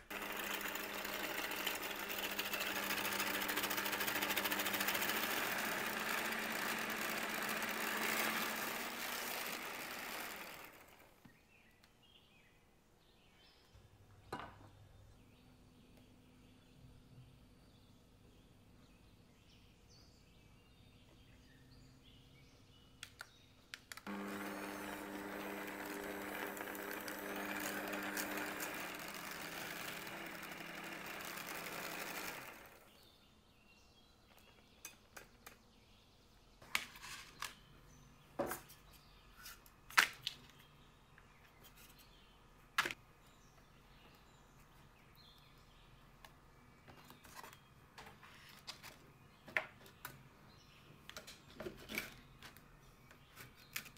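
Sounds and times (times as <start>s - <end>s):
stand mixer whisking: 0.0s - 11.0s, 24.1s - 32.8s.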